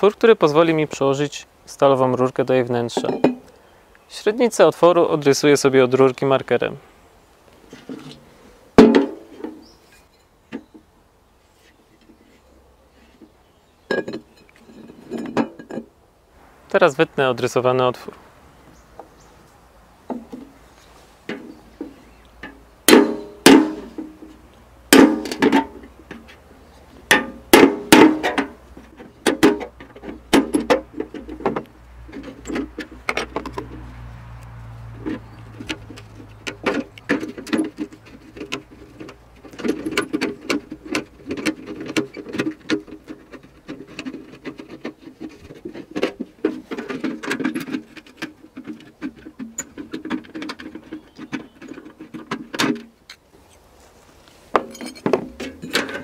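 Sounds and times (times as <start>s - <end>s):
metal strikes on paint can: 22.9s - 24.2s, 24.9s - 25.8s, 27.1s - 28.6s.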